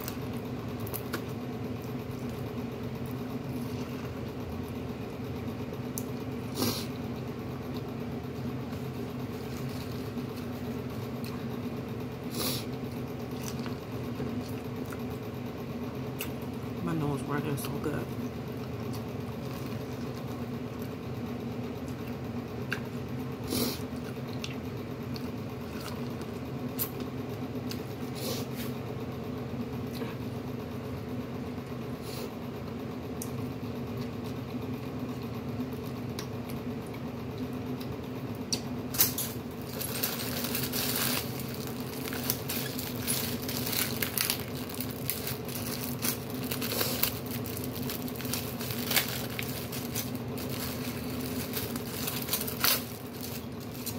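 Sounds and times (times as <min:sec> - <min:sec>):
steady low hum: 0:00.0 - 0:53.9
chewing corn on the cob: 0:13.2 - 0:15.2, 0:21.8 - 0:23.0, 0:23.8 - 0:28.1, 0:39.6 - 0:53.9
plastic bag crinkling: 0:39.2 - 0:53.9.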